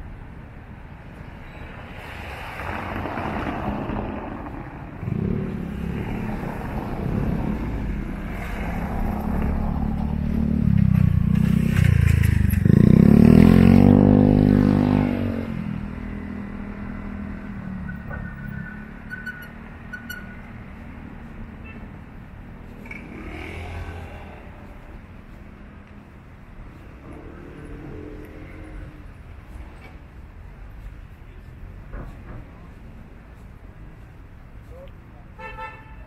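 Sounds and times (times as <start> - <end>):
motor vehicle passing close by: 2.1 - 19.0, 22.6 - 25.7.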